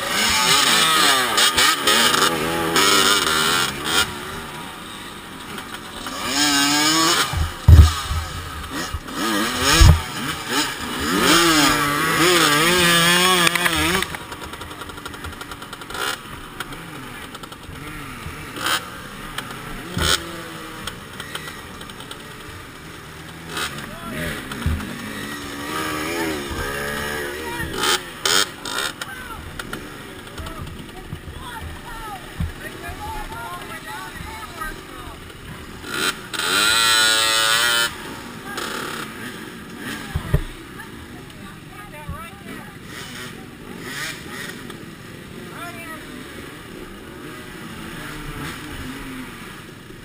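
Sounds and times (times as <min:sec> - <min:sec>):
dirt bike engines revving: 0:00.0 - 0:50.0
heavy thuds: 0:07.3 - 0:09.1, 0:09.7 - 0:10.1.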